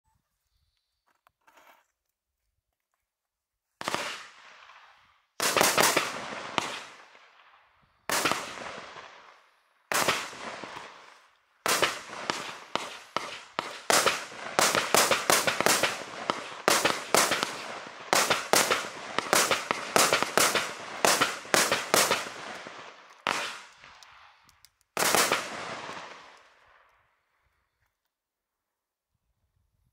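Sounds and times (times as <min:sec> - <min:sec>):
firework shots: 0:03.8 - 0:07.4, 0:08.1 - 0:24.3, 0:25.0 - 0:26.6.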